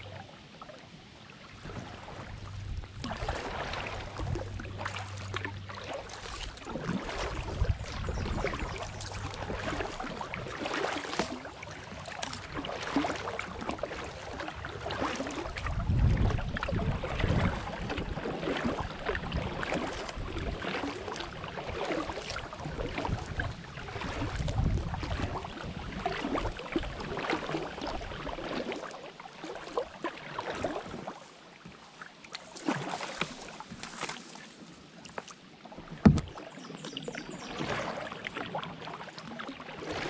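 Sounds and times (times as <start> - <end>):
kayak paddle splashing water: 0.0 - 40.0
low rumble: 1.6 - 10.6, 11.4 - 18.2.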